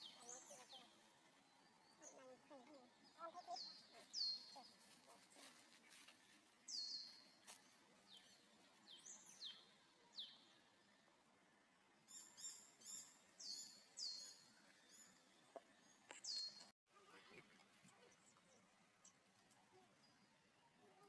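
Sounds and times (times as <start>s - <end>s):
faint high bird chirps: 0.0s - 10.8s, 12.1s - 16.7s.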